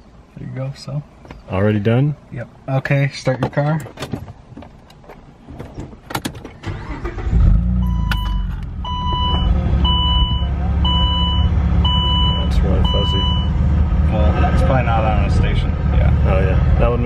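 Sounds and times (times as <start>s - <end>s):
car engine starting and idling: 3.8s - 17.0s.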